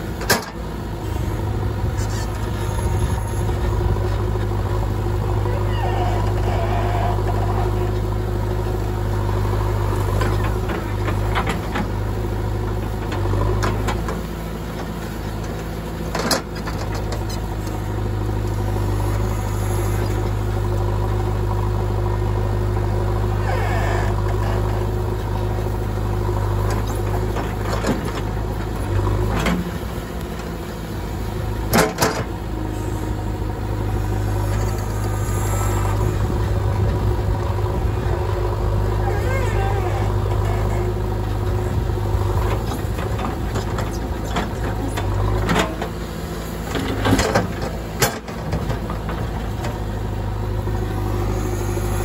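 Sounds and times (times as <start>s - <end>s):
diesel engine running: 0.0s - 52.0s.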